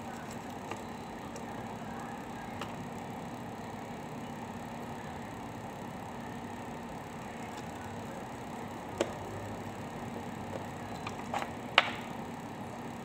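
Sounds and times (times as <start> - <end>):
steady background hum: 0.0 - 13.0
laptop fan assembly clicks: 11.0 - 12.1.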